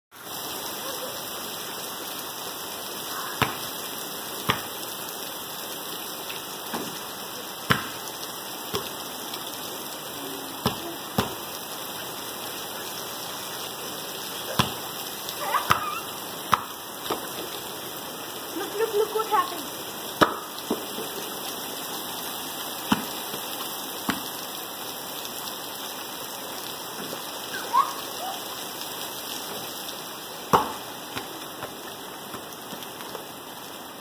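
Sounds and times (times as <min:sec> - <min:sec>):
heavy rain on concrete: 0:00.1 - 0:34.0
basketball bouncing: 0:03.4 - 0:03.7, 0:04.5 - 0:04.7, 0:07.7 - 0:08.0, 0:14.6 - 0:14.8, 0:30.5 - 0:31.7.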